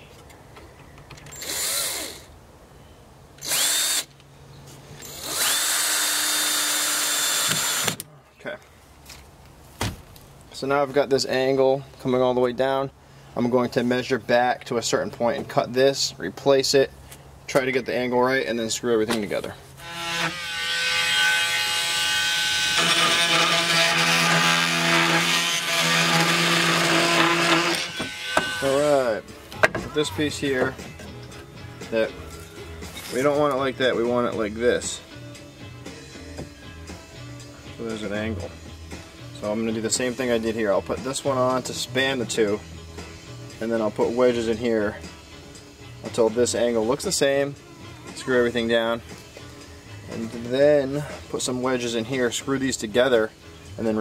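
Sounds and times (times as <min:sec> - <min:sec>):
cordless drill into wood: 0:01.3 - 0:02.3, 0:03.4 - 0:04.1, 0:05.0 - 0:08.0, 0:19.8 - 0:28.8.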